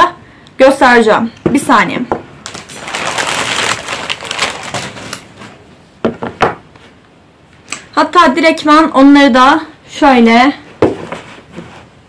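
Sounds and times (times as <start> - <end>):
plastic bag rustling: 2.4 - 5.6
books knocking: 10.8 - 11.7.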